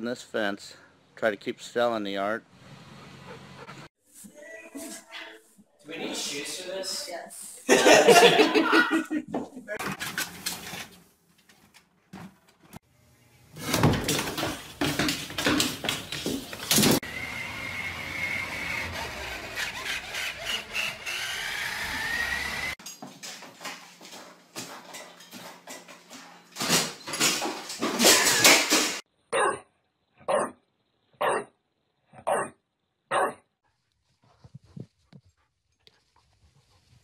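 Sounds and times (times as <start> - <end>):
toy truck motor whirring: 17.0 - 22.8.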